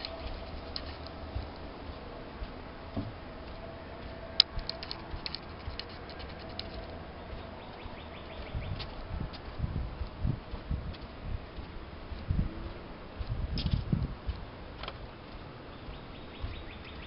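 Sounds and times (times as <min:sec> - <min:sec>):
footsteps on wooden boardwalk: 0:00.0 - 0:17.0
sharp clicks and ticks: 0:04.0 - 0:09.5, 0:13.5 - 0:15.5.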